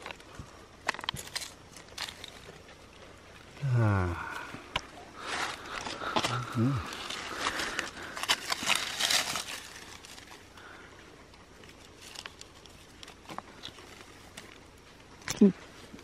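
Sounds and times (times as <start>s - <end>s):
stones shifting: 0.0s - 10.6s
dry leaves crackling and rustling: 5.2s - 10.8s, 11.6s - 14.9s.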